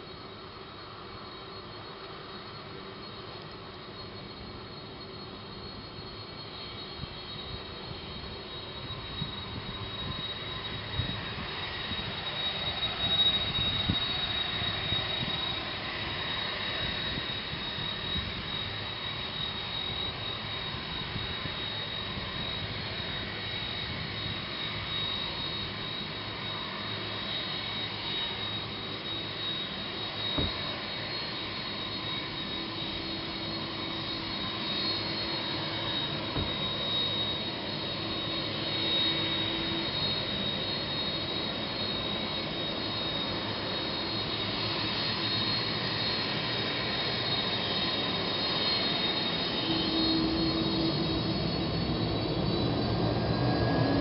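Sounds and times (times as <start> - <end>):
jet engines rushing and whining: 0.0 - 54.0.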